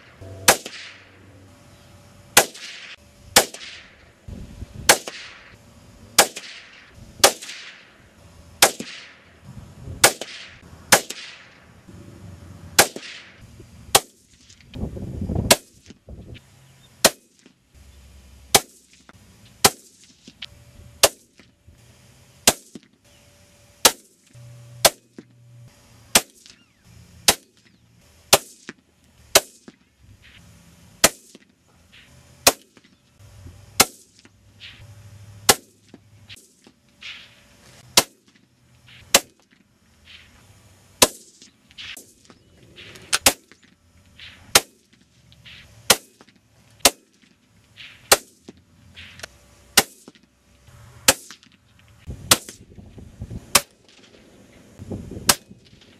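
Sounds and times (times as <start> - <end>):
rifle shots: 0.4 - 1.2, 2.4 - 4.0, 4.9 - 5.6, 6.2 - 8.0, 8.6 - 9.3, 10.0 - 11.6, 12.8 - 14.2, 21.0 - 21.4, 22.4 - 22.9, 29.3 - 29.8, 31.0 - 31.4, 32.4 - 32.9, 37.9 - 39.4, 42.8 - 43.6, 44.2 - 45.0, 48.1 - 48.4.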